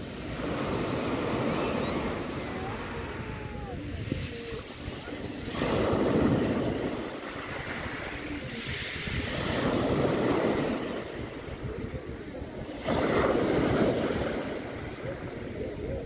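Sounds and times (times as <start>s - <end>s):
surf washing over pebbles: 0.0s - 16.0s.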